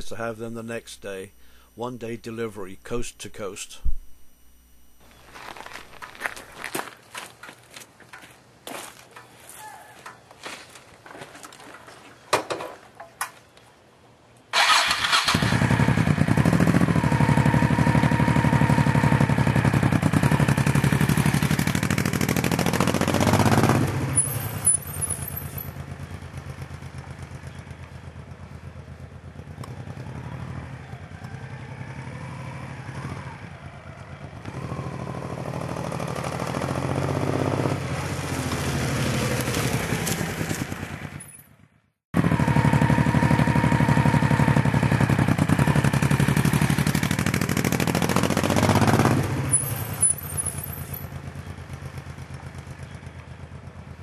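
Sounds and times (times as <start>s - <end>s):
motorcycle engine revving: 14.6s - 41.4s, 42.2s - 54.0s.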